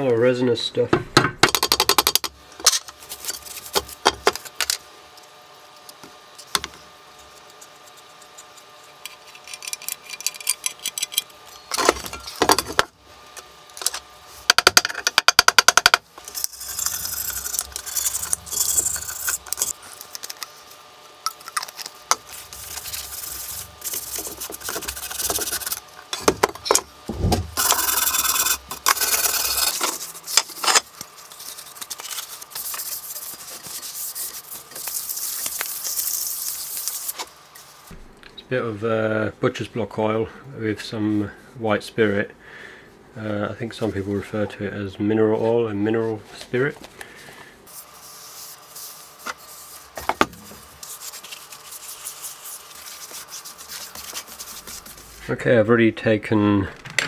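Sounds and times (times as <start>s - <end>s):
rubbing and scrubbing on metal: 16.3s - 20.5s, 21.6s - 26.3s, 27.5s - 37.2s, 47.7s - 55.3s.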